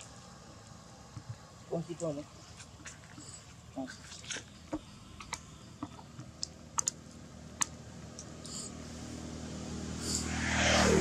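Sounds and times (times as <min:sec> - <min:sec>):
vehicle engine approaching: 0:07.2 - 0:11.0.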